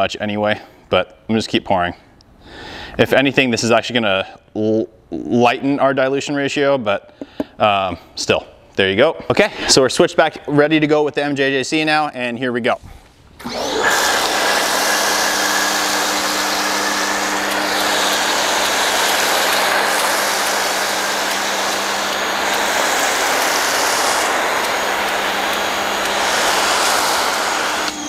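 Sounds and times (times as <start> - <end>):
pressure washer motor hum: 13.4 - 28.0
hiss of foam spray: 16.6 - 28.0.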